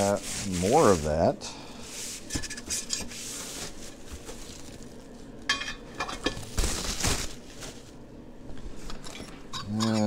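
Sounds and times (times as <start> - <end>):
bubble wrap and plastic crinkling: 0.0 - 1.2, 3.0 - 5.4, 6.2 - 8.1.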